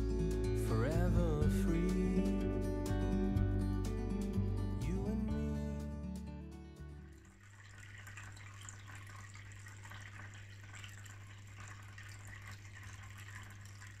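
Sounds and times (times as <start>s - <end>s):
water filter trickling: 7.0s - 14.0s.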